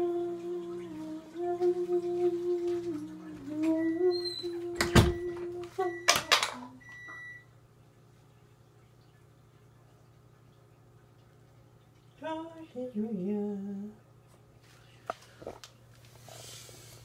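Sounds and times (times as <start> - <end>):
person humming: 0.0 - 6.8.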